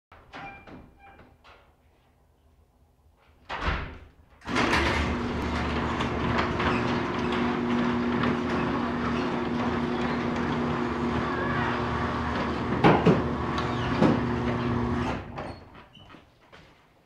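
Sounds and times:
door rattling along tracks: 0:04.4 - 0:15.8
garage door motor hum: 0:04.4 - 0:15.8.

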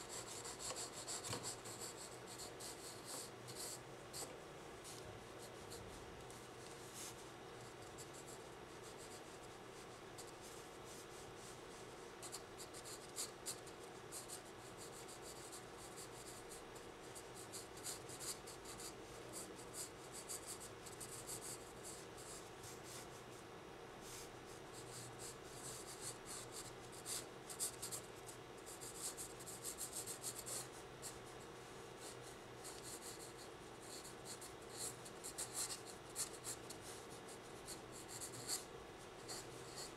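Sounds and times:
pencil scratching on paper: 0:00.0 - 0:04.3, 0:12.2 - 0:16.4, 0:32.0 - 0:39.9
faint steady hum: 0:00.0 - 0:39.9.

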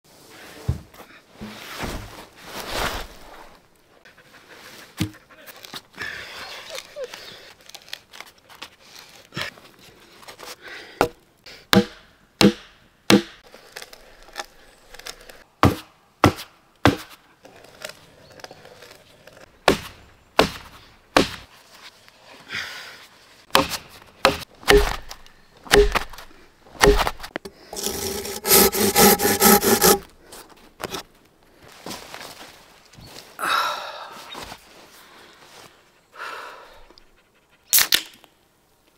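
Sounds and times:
wooden knocks and chops: 0:11.0 - 0:13.4, 0:15.6 - 0:17.2, 0:19.7 - 0:21.5, 0:23.5 - 0:26.2, 0:26.8 - 0:30.0
saw cutting through wood: 0:27.7 - 0:30.1.

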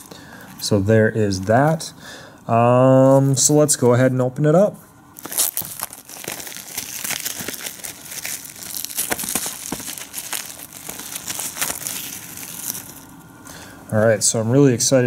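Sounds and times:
plastic shrink-wrap crinkling: 0:05.2 - 0:13.3.

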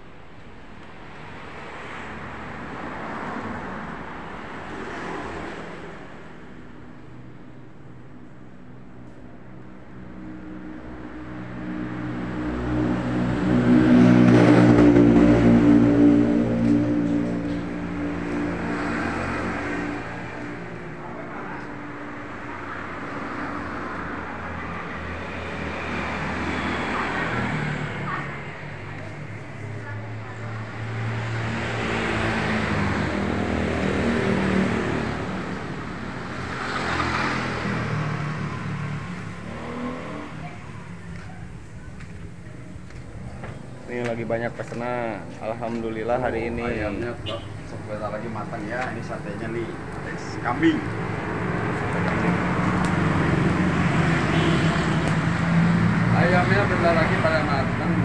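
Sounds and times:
motor vehicles passing by: 0:01.1 - 0:58.0.

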